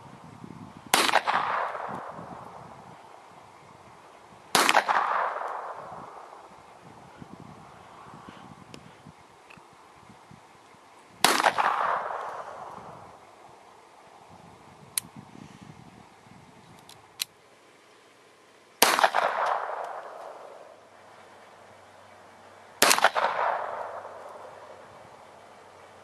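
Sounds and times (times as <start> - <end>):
pistol shots with echo: 0.9 - 2.2, 4.5 - 6.4, 11.2 - 12.7, 18.8 - 20.7, 22.8 - 24.5.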